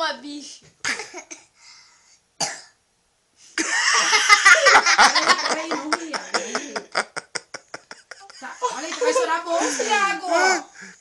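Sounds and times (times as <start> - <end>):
hearty human laughter: 3.6 - 10.0.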